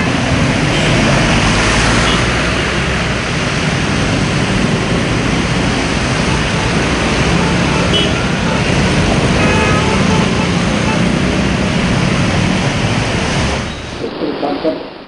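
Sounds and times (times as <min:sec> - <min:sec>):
motorcycle and scooter engines humming: 0:00.0 - 0:14.0.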